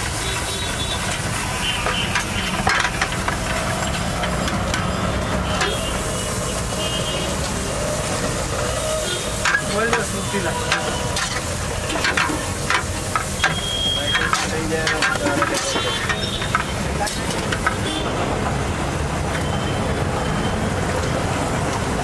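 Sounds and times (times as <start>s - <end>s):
buns sizzling in a pan: 0.0s - 18.0s
metal spatula scraping a pan: 9.2s - 17.8s.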